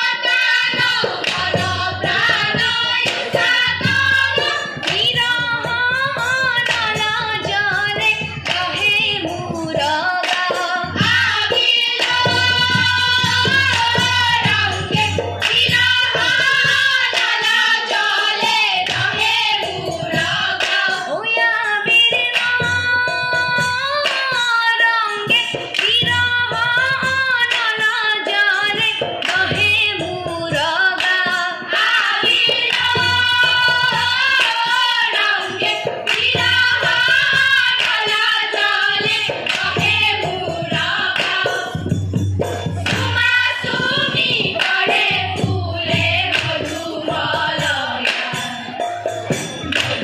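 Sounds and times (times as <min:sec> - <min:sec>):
women's chorus singing: 0:00.0 - 0:22.8, 0:23.6 - 0:50.0
rhythmic hand clapping: 0:00.0 - 0:24.6, 0:25.2 - 0:50.0
hand drum beating: 0:28.8 - 0:50.0.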